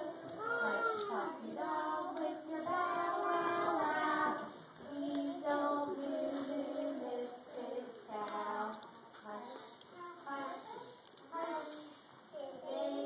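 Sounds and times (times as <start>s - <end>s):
children singing: 0.0s - 8.8s, 11.3s - 13.0s.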